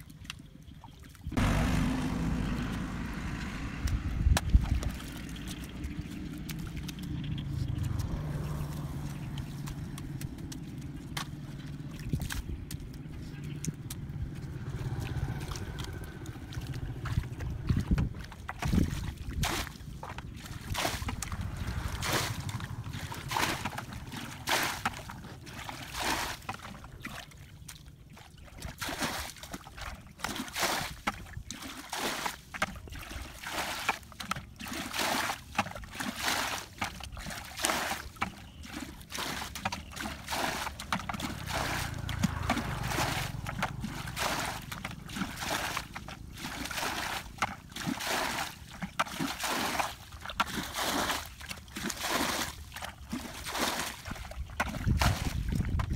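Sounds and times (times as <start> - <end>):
muddy water splashing: 0.0 - 55.9.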